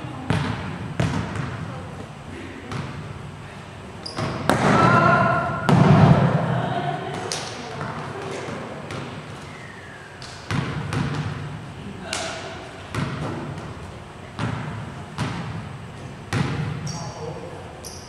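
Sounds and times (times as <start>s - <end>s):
volleyball smacks in echoing hall: 0.0s - 3.2s, 4.0s - 17.4s.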